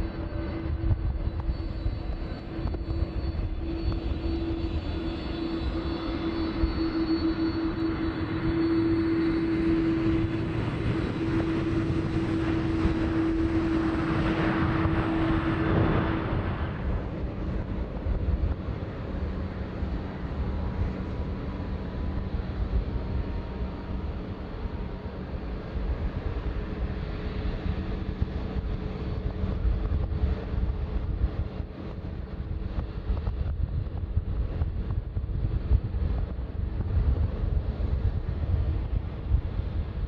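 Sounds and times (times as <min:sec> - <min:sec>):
taxiing jets humming: 0:00.0 - 0:21.5
jet taking off: 0:00.0 - 0:40.0.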